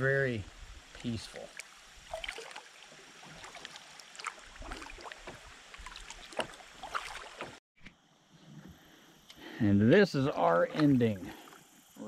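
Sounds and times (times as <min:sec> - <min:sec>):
water trickling: 0:00.0 - 0:07.6
paddle splashes and drips: 0:00.4 - 0:07.6, 0:10.6 - 0:12.0.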